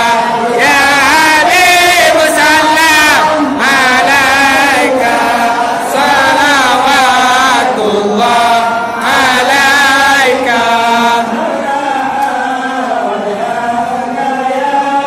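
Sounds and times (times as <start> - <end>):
men chanting in unison: 0.0 - 15.0.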